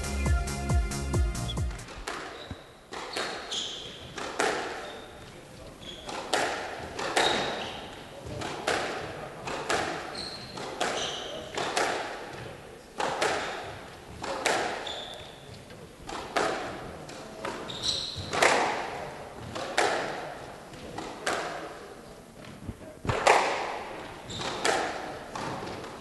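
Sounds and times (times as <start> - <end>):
shoes squeaking on wooden floor: 1.8 - 8.4, 9.5 - 11.7, 13.5 - 16.2, 17.2 - 18.5, 23.9 - 26.0
squash ball hitting rackets and walls: 1.8 - 26.0.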